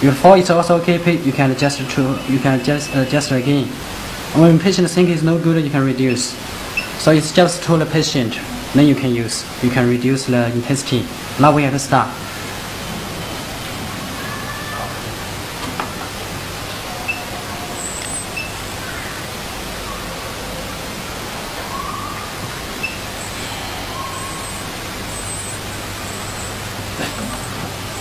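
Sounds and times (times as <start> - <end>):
steady hiss: 0.0 - 28.0
faint high chirps: 21.6 - 26.6.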